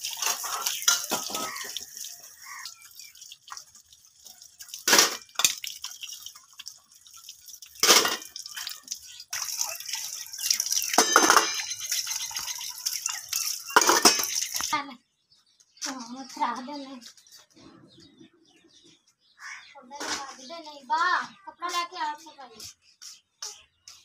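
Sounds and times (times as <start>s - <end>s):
steel pots clanking: 0.0s - 3.6s, 4.5s - 14.8s
tap water running: 0.0s - 14.8s.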